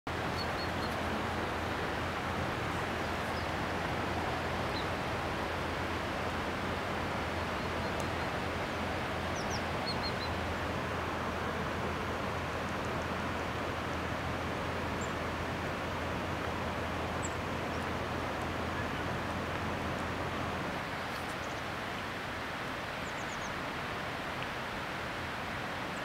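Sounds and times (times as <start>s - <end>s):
steady rushing outdoor noise: 0.1s - 26.0s.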